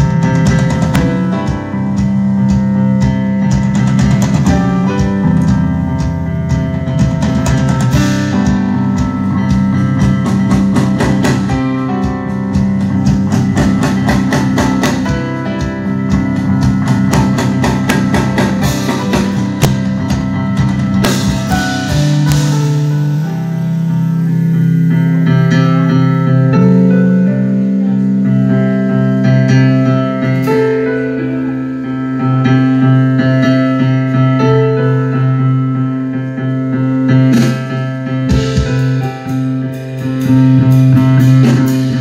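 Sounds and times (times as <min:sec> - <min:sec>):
fast busy drum hits: 0:00.0 - 0:25.3, 0:37.2 - 0:42.0
live rock band playing: 0:00.0 - 0:42.0.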